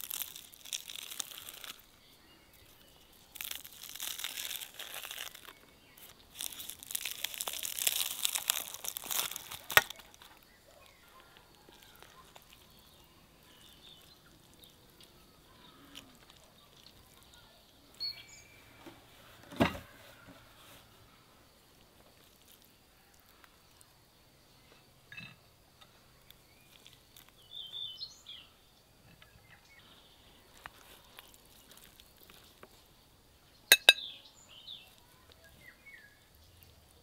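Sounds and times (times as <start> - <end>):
crisp crust crackling and crunching: 0.0 - 18.5, 21.7 - 24.0, 26.2 - 28.4, 30.4 - 33.0
faint birdsong: 0.0 - 37.0.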